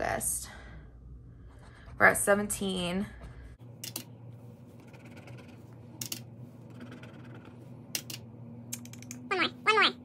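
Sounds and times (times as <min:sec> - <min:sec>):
faint steady hum: 0:00.0 - 0:10.0
pen scratching on paper: 0:04.8 - 0:05.7, 0:06.7 - 0:07.6.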